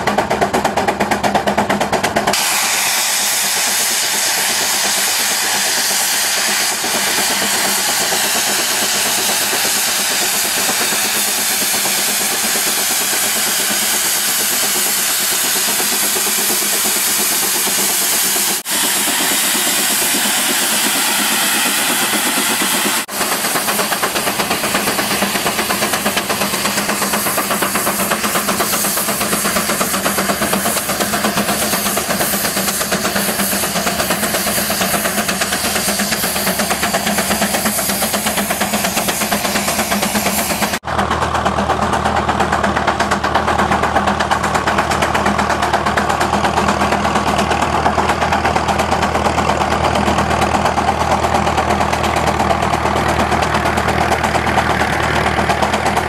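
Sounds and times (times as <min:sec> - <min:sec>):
steam engine exhaust beat: 0:00.0 - 0:56.0.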